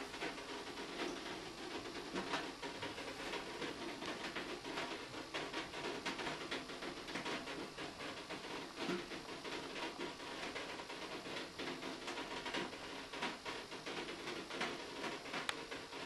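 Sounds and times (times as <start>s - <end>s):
water dripping onto tin cans: 0.0s - 16.0s.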